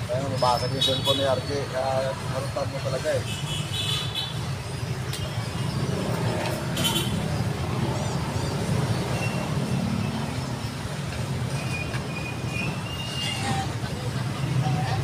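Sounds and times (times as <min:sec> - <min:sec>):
low traffic rumble: 0:00.0 - 0:15.0.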